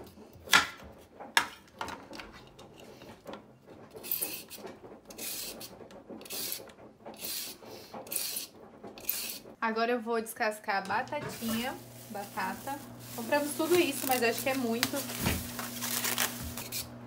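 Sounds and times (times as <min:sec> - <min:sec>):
peeler scraping carrot: 0:03.9 - 0:09.6, 0:11.2 - 0:17.0.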